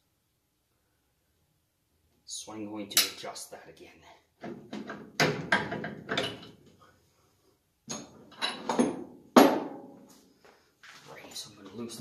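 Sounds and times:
metal clunks and scrapes: 4.4s - 6.6s, 7.9s - 9.1s.

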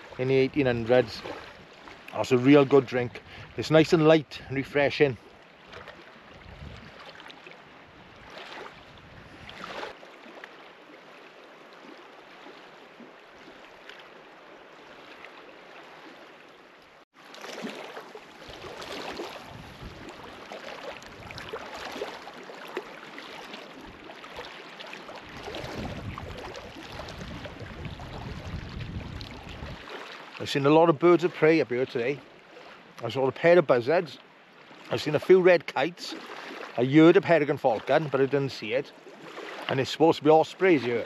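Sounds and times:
gusty wind: 6.4s - 7.0s, 7.9s - 9.8s, 18.5s - 20.4s, 21.0s - 21.7s, 25.3s - 29.9s
wind buffeting microphone: 6.4s - 7.0s, 8.0s - 9.7s, 18.5s - 20.4s, 21.0s - 21.7s, 25.3s - 29.9s.

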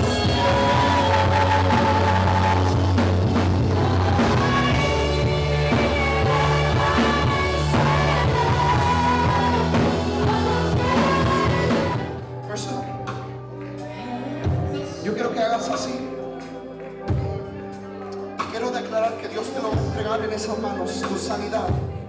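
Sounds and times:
people singing: 0.0s - 12.9s, 13.8s - 18.4s
bass guitar: 0.0s - 22.0s.

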